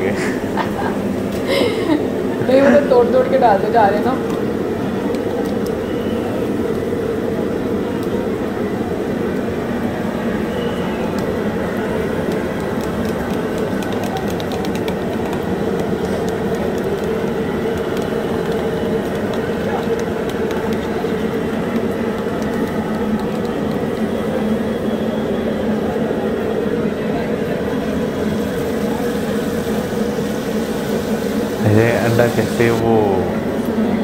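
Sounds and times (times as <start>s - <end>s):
crowd hubbub: 0.0s - 34.0s
batter frying in hot oil: 28.2s - 32.6s.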